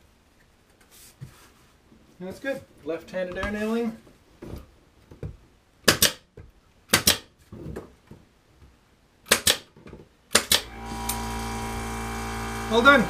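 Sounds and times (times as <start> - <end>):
pin nailer shots: 5.8 - 6.2, 6.9 - 7.3, 9.3 - 9.7, 10.3 - 13.0
steady machine hum: 10.6 - 13.0.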